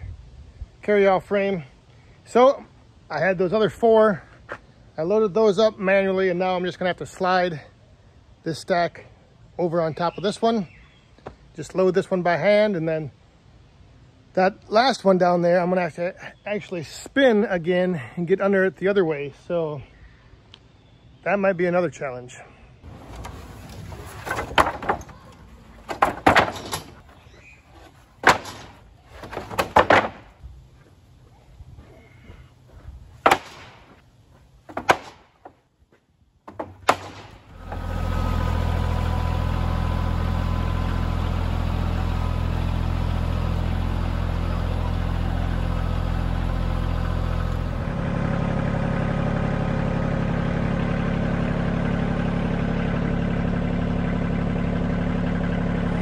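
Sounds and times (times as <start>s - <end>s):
tractor diesel engine running: 22.8s - 34.8s, 36.8s - 56.0s
wooden pallets knocking: 23.0s - 30.4s, 33.2s - 34.0s, 34.6s - 35.6s, 36.4s - 37.5s.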